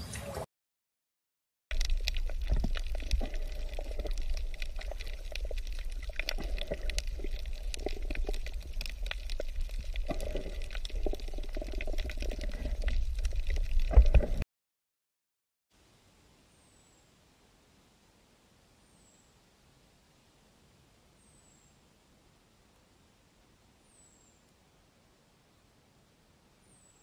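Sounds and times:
aquarium water bubbling: 0:01.7 - 0:14.4.

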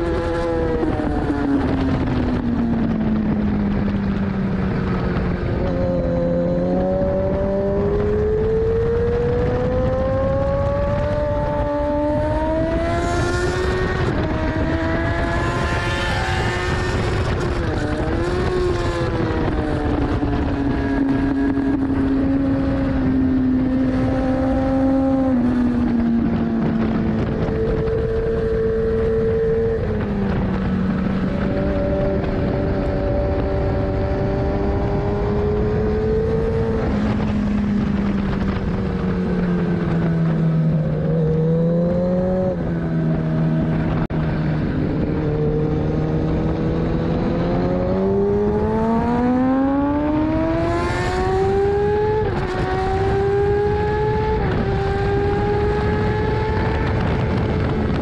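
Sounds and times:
motorcycle engine revving: 0:00.0 - 0:58.0
wind rush on microphone: 0:00.0 - 0:58.0.

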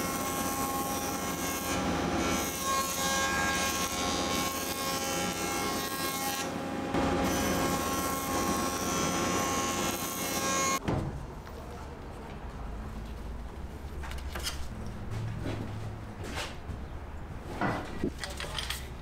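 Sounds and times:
planer cutting wood: 0:00.0 - 0:10.8
jointer machine hum: 0:01.0 - 0:10.8.

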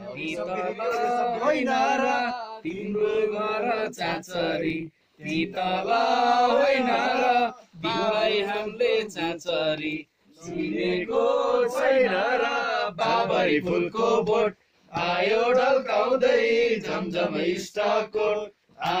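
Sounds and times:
men singing without instruments: 0:00.0 - 0:19.0.

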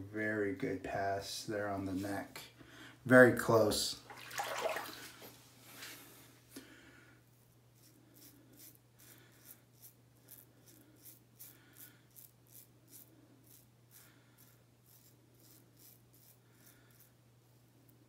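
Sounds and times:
razor scraping stubble: 0:07.7 - 0:17.2.

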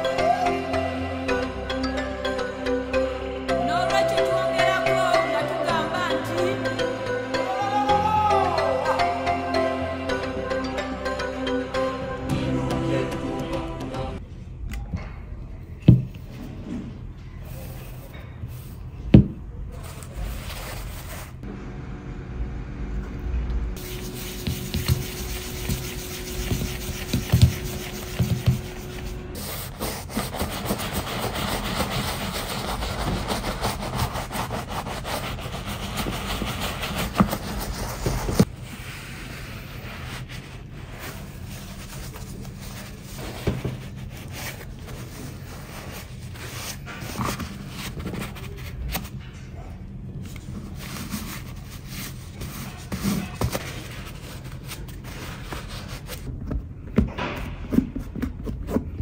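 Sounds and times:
brush scrubbing leather: 0:23.8 - 0:38.5
paper towel wiping leather: 0:23.8 - 0:48.6.

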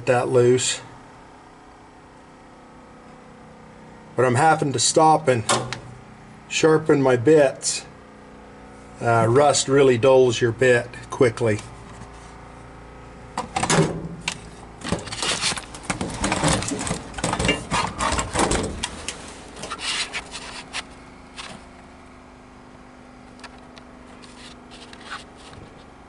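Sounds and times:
scraping and rubbing: 0:15.0 - 0:18.4, 0:19.0 - 0:21.6, 0:24.1 - 0:25.9.

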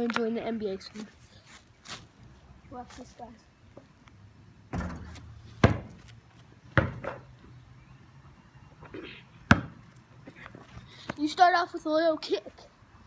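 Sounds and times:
basketball hitting rim and backboard: 0:04.7 - 0:06.0, 0:06.8 - 0:07.2, 0:09.5 - 0:09.8
basketball bouncing on hard ground: 0:04.7 - 0:07.6, 0:09.4 - 0:09.9.

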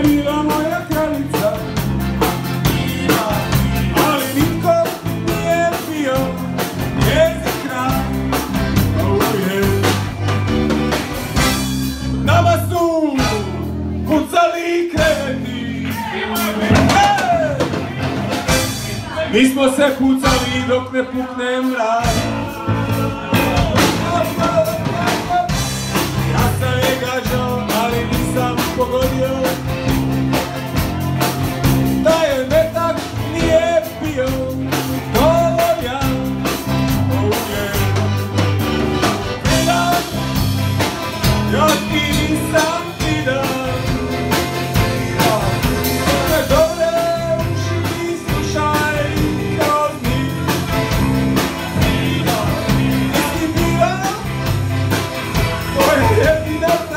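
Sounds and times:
person singing: 0:00.0 - 0:10.3, 0:12.2 - 0:29.9, 0:31.8 - 0:38.6, 0:39.4 - 0:40.6, 0:41.2 - 0:54.5, 0:55.7 - 0:56.9
accordion: 0:00.0 - 0:14.3, 0:17.7 - 0:56.9
acoustic guitar: 0:00.0 - 0:56.9
drum kit: 0:00.0 - 0:56.9
electric bass: 0:00.0 - 0:56.9.

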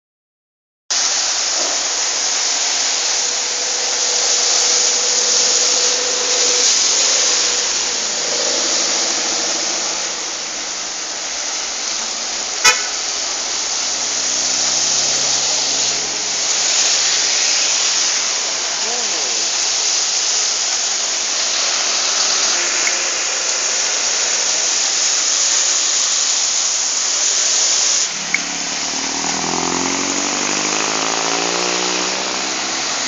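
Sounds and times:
tyres hissing on wet road: 0:00.9 - 0:33.0
faint car horn: 0:12.6 - 0:13.2
low engine hum: 0:28.0 - 0:33.0.

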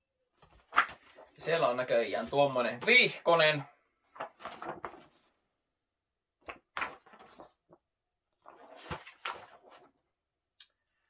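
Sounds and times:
paper pages rustling: 0:00.4 - 0:03.1, 0:04.0 - 0:05.3, 0:06.4 - 0:07.8, 0:08.4 - 0:10.0.

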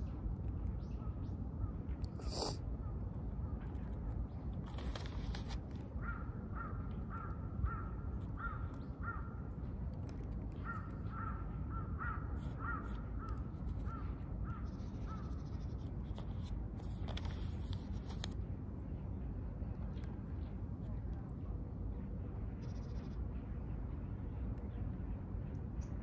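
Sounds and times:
low background rumble: 0:00.0 - 0:26.0
crow cawing: 0:06.0 - 0:09.3, 0:10.7 - 0:13.0.

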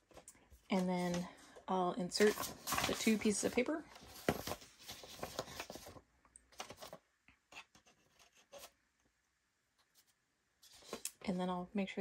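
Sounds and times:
paper rustling: 0:00.0 - 0:08.7.

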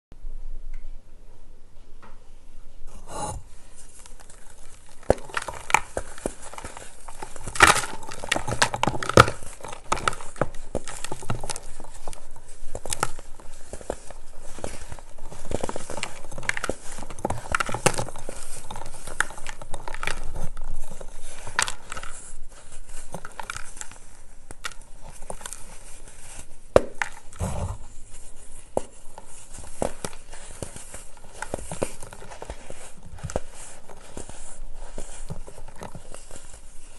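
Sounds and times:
baking soda blocks crunching: 0:03.8 - 0:27.6.

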